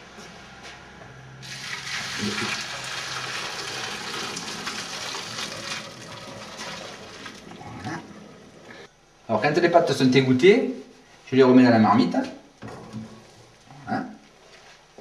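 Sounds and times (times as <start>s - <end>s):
water splashing into colander: 1.4s - 7.6s.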